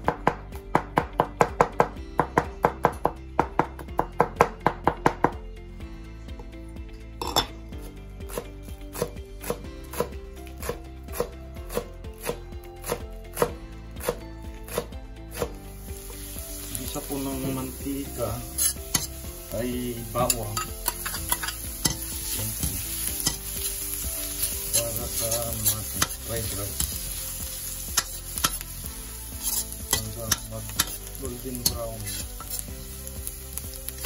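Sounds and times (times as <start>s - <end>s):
knife chopping on cutting board: 8.3s - 15.5s
garlic sizzling in oil: 8.3s - 34.0s.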